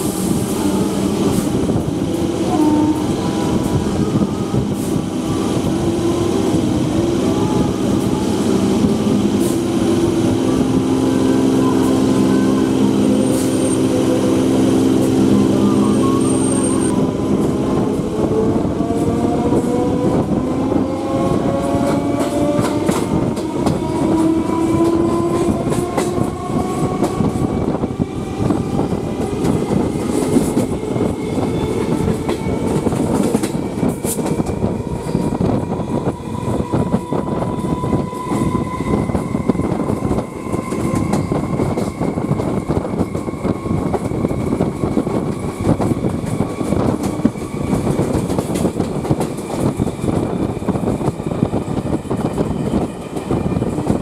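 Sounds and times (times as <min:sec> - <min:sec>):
train wheels clacking over rails: 0:16.4 - 0:54.0.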